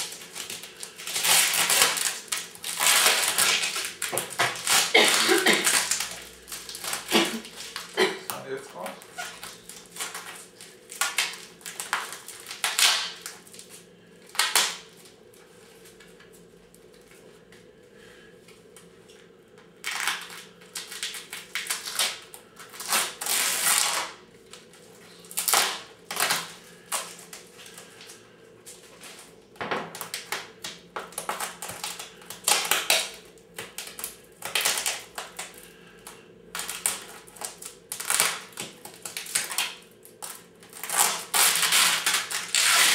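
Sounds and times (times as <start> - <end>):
plastic bag crinkling: 0.0 - 15.2, 19.8 - 28.2, 36.5 - 42.9.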